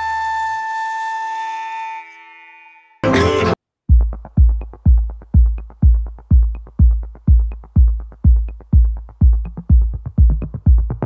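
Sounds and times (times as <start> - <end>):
electronic music: 3.0 - 11.0
steady kick drum: 3.8 - 11.0
quick ticking hi-hats: 3.9 - 11.0.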